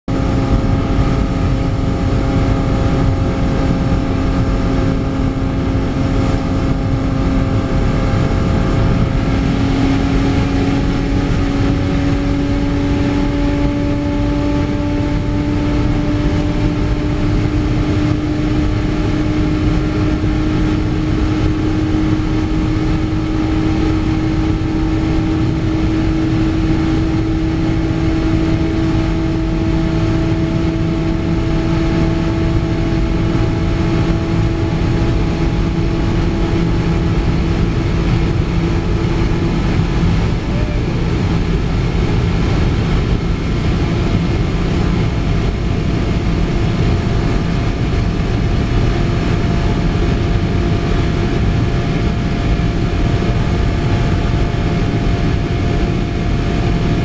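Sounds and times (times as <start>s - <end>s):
van engine at full throttle: 0.0s - 57.0s
wind and road roar: 0.0s - 57.0s.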